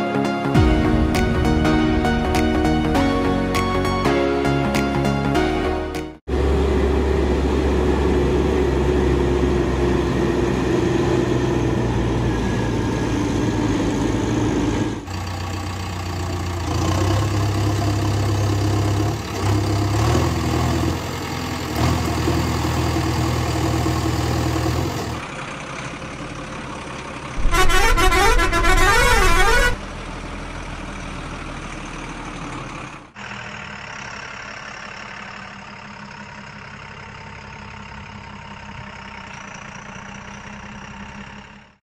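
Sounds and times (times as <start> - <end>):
heavy truck engine running: 0.1 - 41.8
truck horn blaring: 27.4 - 29.9.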